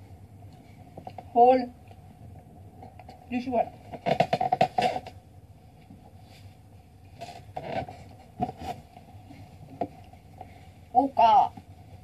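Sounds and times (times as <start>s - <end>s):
bumps and scrapes: 3.7s - 5.2s, 5.8s - 10.6s.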